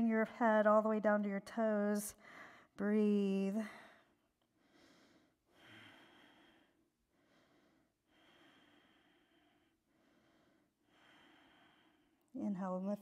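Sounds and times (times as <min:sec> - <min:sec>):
faint slow breathing: 0:02.2 - 0:02.8, 0:03.7 - 0:12.3.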